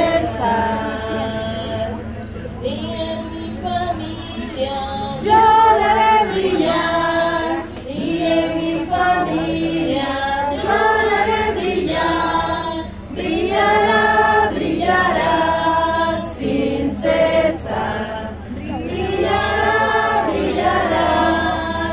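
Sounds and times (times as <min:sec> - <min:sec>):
congregation singing a hymn: 0:00.0 - 0:21.9.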